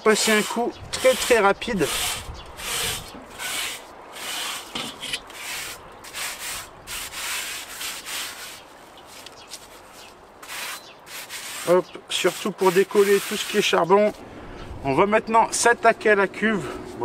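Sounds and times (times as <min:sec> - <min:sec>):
sponge scrubbing metal grate: 0:00.1 - 0:08.6, 0:10.4 - 0:13.8.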